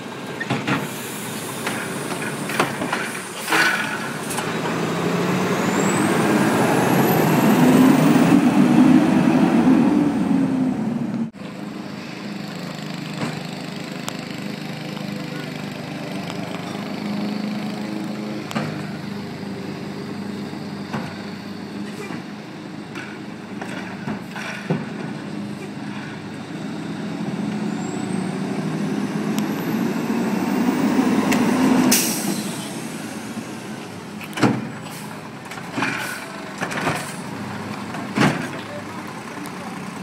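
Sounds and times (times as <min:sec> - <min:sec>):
truck engine running: 0:00.0 - 0:40.0
air brake hiss: 0:00.8 - 0:02.1, 0:31.9 - 0:32.9.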